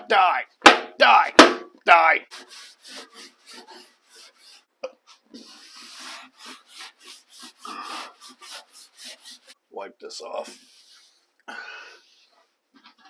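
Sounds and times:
steel wool pad scrubbing: 2.3s - 4.7s, 5.4s - 9.6s.

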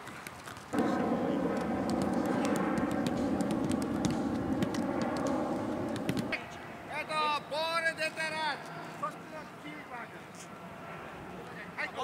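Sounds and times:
mechanical drone: 0.8s - 6.4s.

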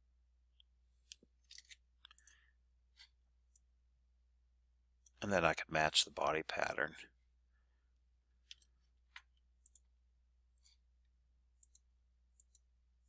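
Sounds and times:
computer mouse clicks: 1.0s - 2.4s, 8.4s - 9.9s, 11.6s - 12.7s.

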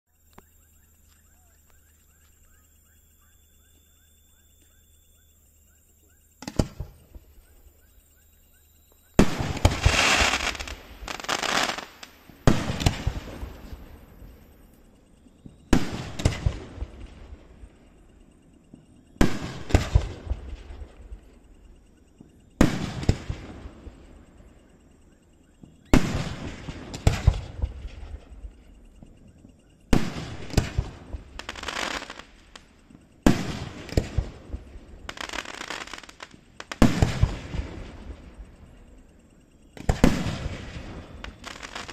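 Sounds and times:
firework bangs: 9.2s - 14.2s, 33.2s - 38.3s, 39.8s - 41.9s.

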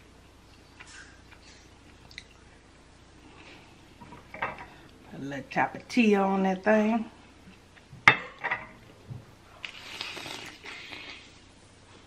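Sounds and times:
person chewing crisp food: 9.6s - 11.3s.

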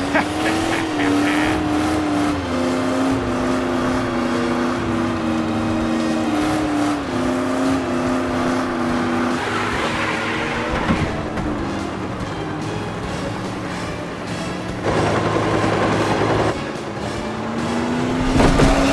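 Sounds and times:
cartoon van engine revving: 0.0s - 18.9s
music of long held notes: 11.1s - 18.9s.

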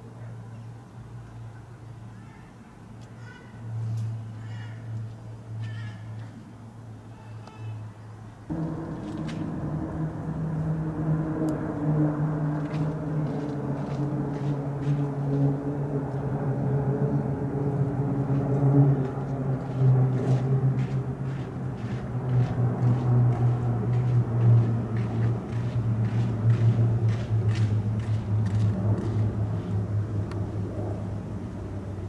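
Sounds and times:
propeller aircraft engines droning: 0.0s - 32.0s.

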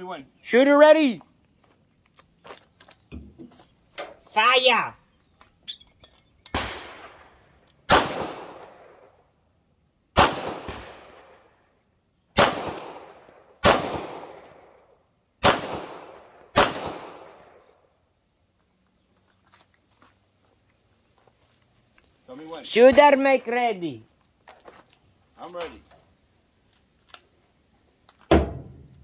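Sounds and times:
pistol shots echoing: 6.6s - 9.1s, 10.2s - 11.3s, 12.4s - 14.7s, 15.4s - 17.6s.

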